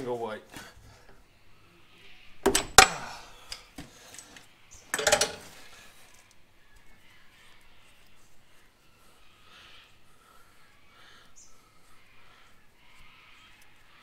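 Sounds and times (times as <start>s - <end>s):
wrench breaking plug loose: 2.4s - 3.6s, 4.9s - 5.5s
metal clanks: 2.4s - 3.7s, 4.9s - 5.6s.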